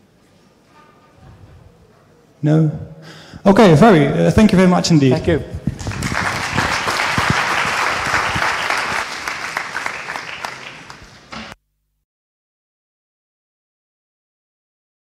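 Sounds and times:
audience applauding: 5.7 - 11.6.

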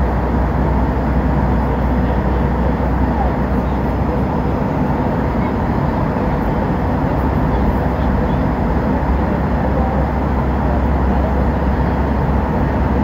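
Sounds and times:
jet airliner cabin noise: 0.0 - 13.0.

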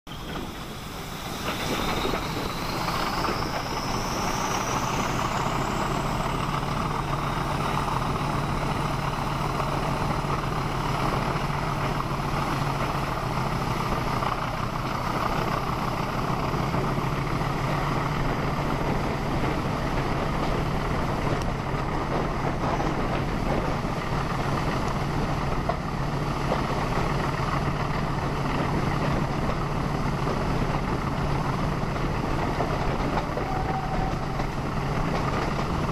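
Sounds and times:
high engine whistle: 0.1 - 7.5, 33.2 - 34.6
diesel locomotive engine throbbing: 0.1 - 35.9
wheel and rail noise: 0.1 - 35.9.

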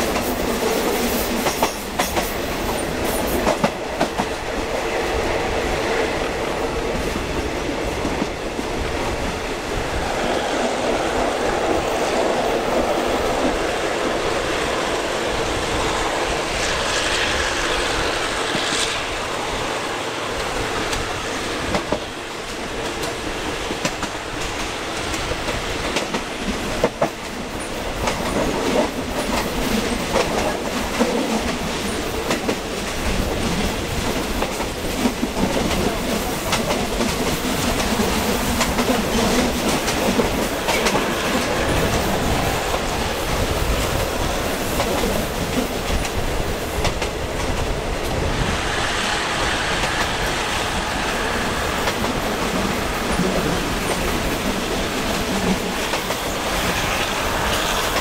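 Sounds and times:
train wheels clacking over rail joints: 0.0 - 8.5, 20.4 - 58.0
train rolling rumble: 0.0 - 58.0.

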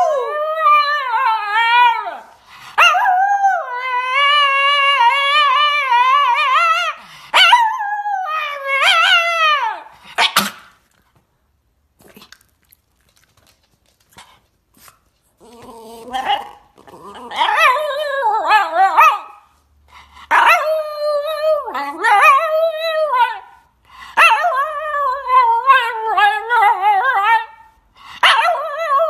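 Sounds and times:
dog howling and yipping: 0.0 - 9.9, 15.4 - 19.4, 20.3 - 23.6, 24.2 - 29.0.

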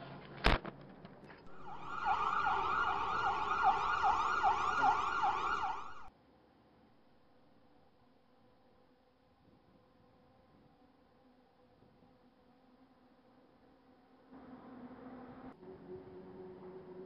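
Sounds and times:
ambulance siren wailing: 1.5 - 6.1.

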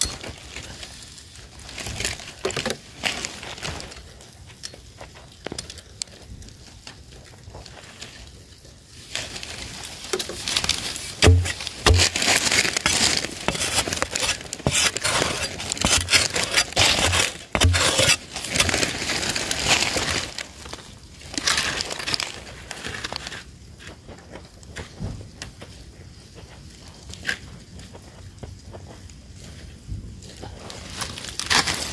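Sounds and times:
soil scraping and digging: 9.0 - 24.0, 30.6 - 31.9
tool thumping ground: 11.2 - 18.8.

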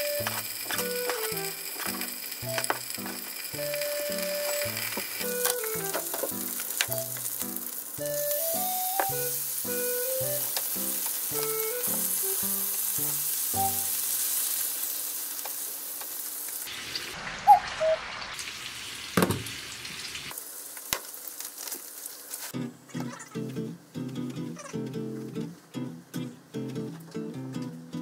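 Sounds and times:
light plucked background music: 0.0 - 14.0, 22.6 - 28.0
meat sizzling in a frying pan: 0.0 - 22.6.

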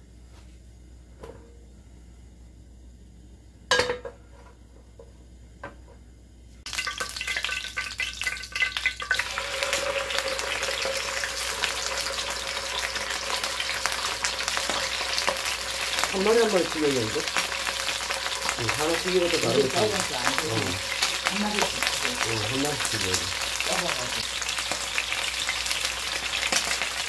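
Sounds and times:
frying pan clanking on stove: 3.7 - 4.2
fish sizzling in oil: 6.7 - 27.0.

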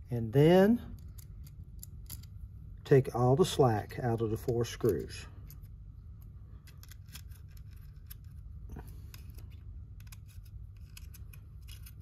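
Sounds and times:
low room hum: 0.0 - 12.0
hex key clicking on screws: 9.1 - 12.0.

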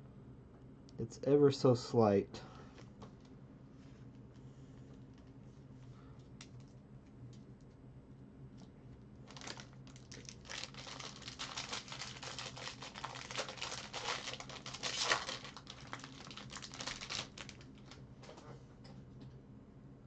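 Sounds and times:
plastic and foil wrapping crinkling: 9.2 - 18.0.

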